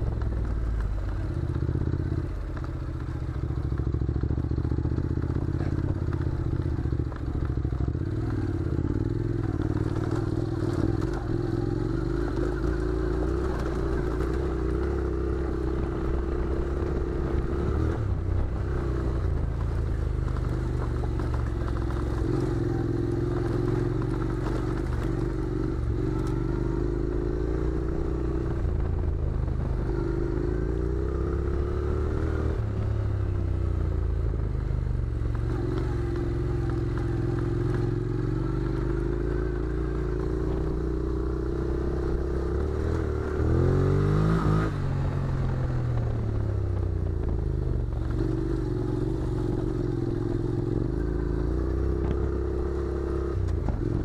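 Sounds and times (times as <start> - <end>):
gravel clattering under tyres: 0.0 - 31.2
motorcycle engine revving: 0.0 - 54.0.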